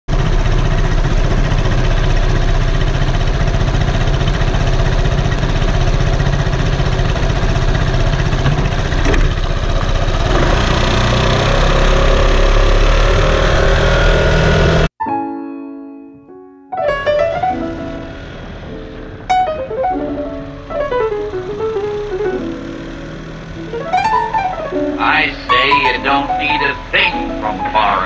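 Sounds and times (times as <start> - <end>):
scooter engine idling and revving: 0.1 - 14.9, 17.3 - 19.3, 20.0 - 25.0.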